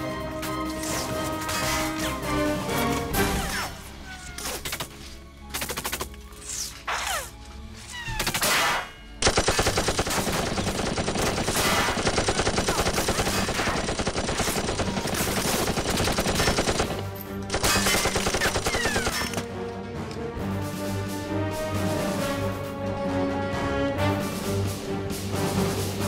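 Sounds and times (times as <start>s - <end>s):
music: 0.0s - 26.0s
automatic gunfire: 9.2s - 19.4s.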